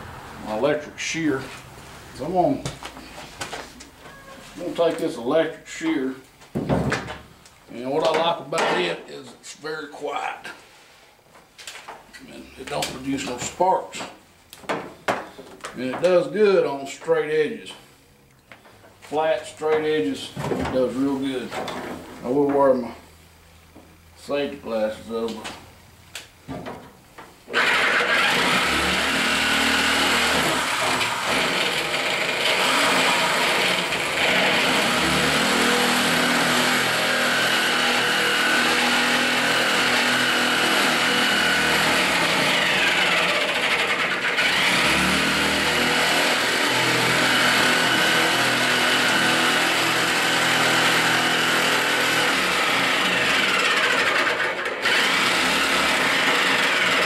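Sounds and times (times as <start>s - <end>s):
electric metal shear cutting: 27.5s - 57.0s.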